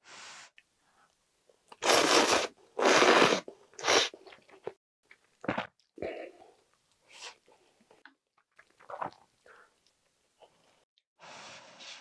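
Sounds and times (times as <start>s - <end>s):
loud noodle slurps: 1.8s - 4.2s.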